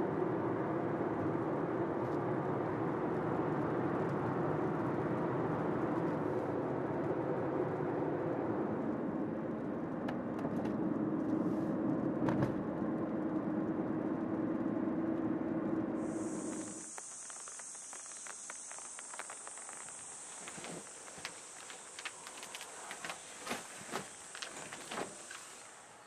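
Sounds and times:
road and engine drone in car: 0.0 - 26.0.

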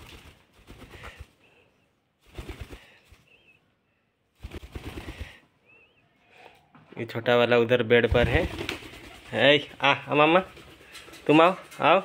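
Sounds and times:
parakeet wings flapping: 0.0 - 1.4, 2.2 - 3.4, 4.4 - 5.4, 8.0 - 12.0
faint bird chirps: 2.9 - 4.3, 5.5 - 6.9.

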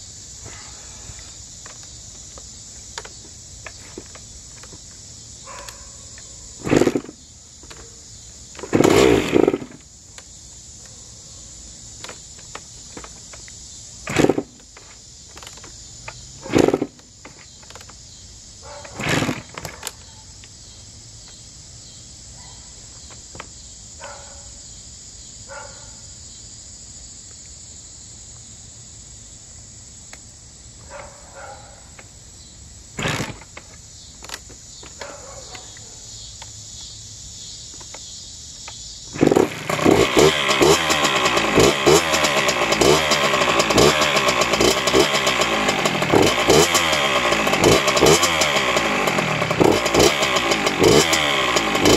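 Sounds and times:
dirt bike kick-start thumps: 1.2 - 10.2, 12.0 - 18.0, 18.7 - 20.1, 33.0 - 35.2, 39.1 - 51.9
two-stroke engine revving: 6.5 - 7.2, 8.5 - 9.9, 14.0 - 14.7, 15.5 - 17.1, 18.8 - 19.9, 32.9 - 33.6, 39.1 - 51.9.

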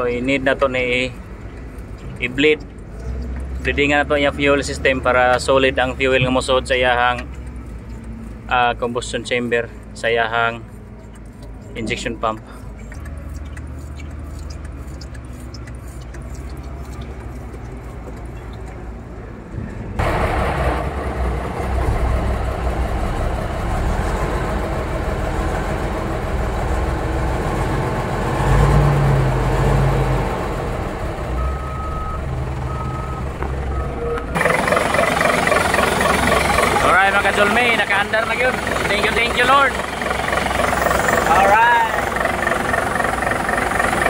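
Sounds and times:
diesel engine starting and running: 0.0 - 44.0.

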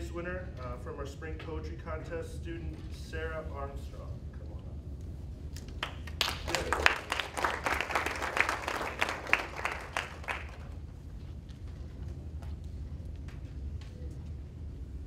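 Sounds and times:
small audience applauding: 5.6 - 10.9.

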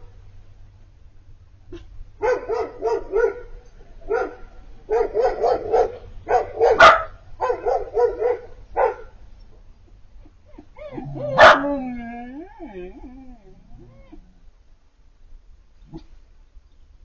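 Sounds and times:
dog barking: 1.7 - 9.2, 11.2 - 11.8
puppy whiny yelps: 10.4 - 14.4.

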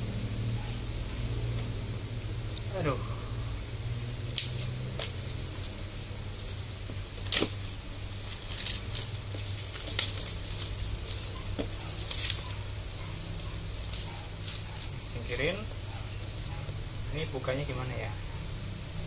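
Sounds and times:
steady low hum: 0.0 - 19.0
plastic wrap crinkling: 4.5 - 15.6.

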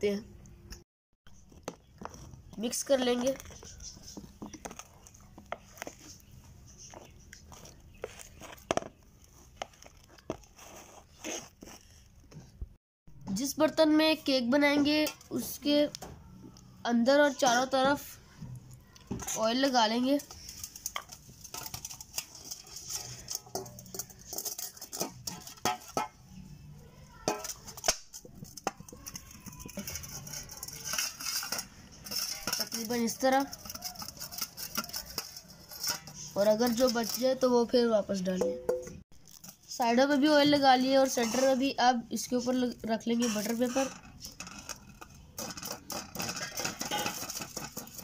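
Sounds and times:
spatula scraping batter in bowl: 1.4 - 12.4, 27.3 - 37.8, 39.4 - 48.0
fingers rubbing metal bowl: 28.4 - 37.4, 41.0 - 41.8.

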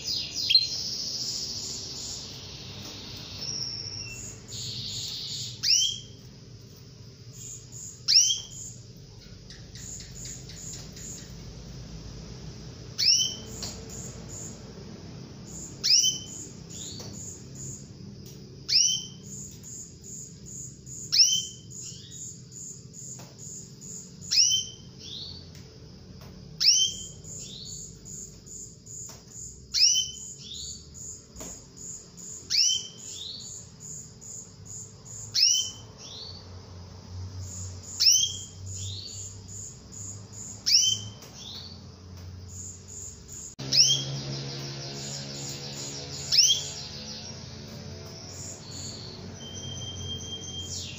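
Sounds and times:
canary calling: 0.0 - 17.9, 18.6 - 25.6, 26.5 - 31.2, 31.8 - 36.6, 37.4 - 41.9, 42.5 - 50.9
faint rapid high chirps: 42.5 - 50.9.

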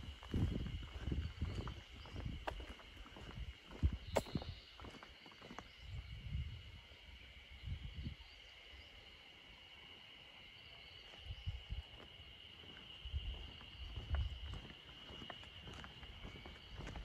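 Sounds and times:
footsteps on paved road: 0.0 - 5.8, 11.9 - 17.0
high-pitched insect chorus: 0.0 - 17.0.

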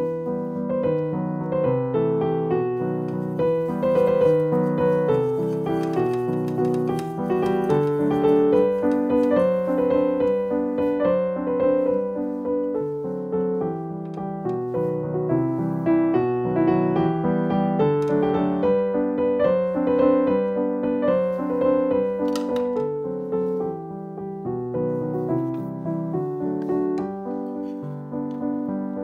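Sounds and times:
piano melody: 0.0 - 29.0.

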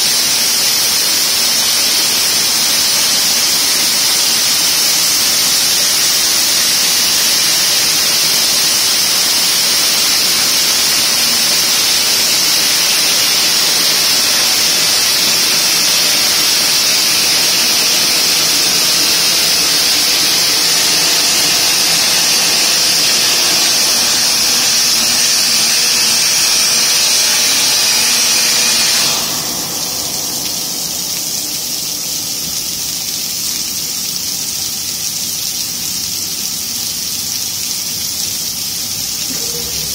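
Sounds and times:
stone saw blade hissing: 6.9 - 31.8.

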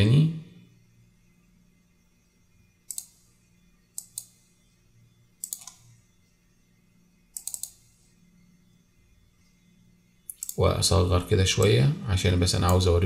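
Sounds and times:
faint low hum: 0.0 - 13.0
computer mouse clicking: 2.9 - 3.2, 3.9 - 4.4, 5.4 - 5.9, 7.3 - 8.0, 10.3 - 10.6.

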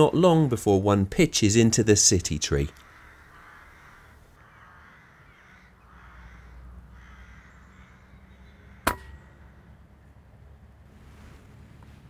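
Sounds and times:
crows cawing: 2.7 - 9.8
air rifle shot: 8.9 - 9.2.

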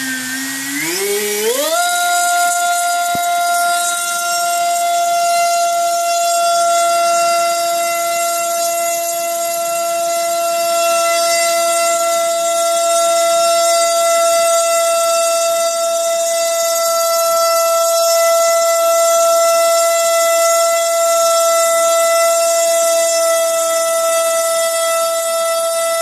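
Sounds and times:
high-pitched electric motor whine: 0.0 - 26.0.

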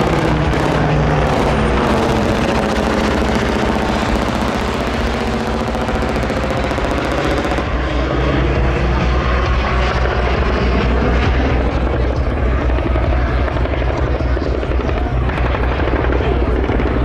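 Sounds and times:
helicopter rotor chop: 0.0 - 17.0
turbine whine: 0.0 - 17.0.

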